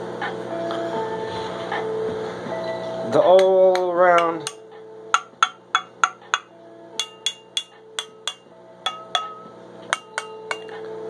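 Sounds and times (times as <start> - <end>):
glass bong being tapped: 3.4 - 10.8.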